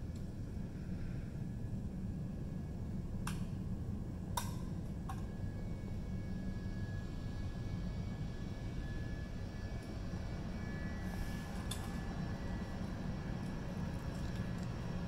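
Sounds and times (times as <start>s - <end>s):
faint high whine: 0.0s - 15.0s
distant jet taxiing rumble: 5.4s - 15.0s.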